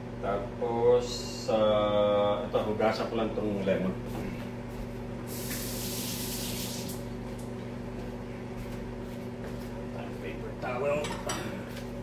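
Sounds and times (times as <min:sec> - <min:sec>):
low appliance hum: 0:00.0 - 0:12.0
kitchen tap running: 0:05.3 - 0:07.1.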